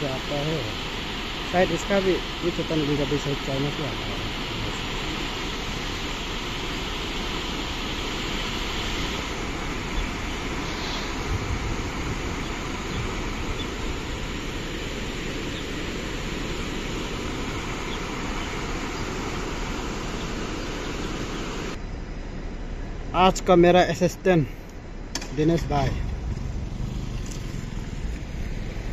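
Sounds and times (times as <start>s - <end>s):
low bumps: 25.2s - 28.9s.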